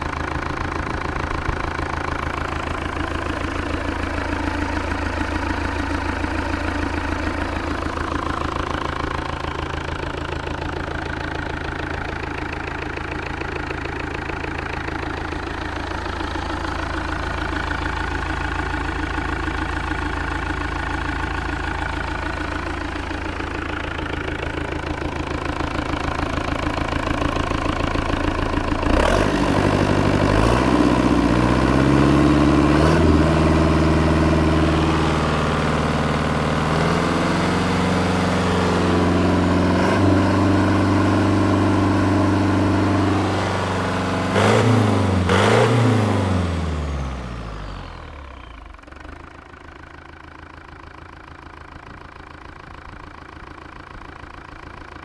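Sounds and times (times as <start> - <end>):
marine diesel engine revving: 28.8 - 48.3.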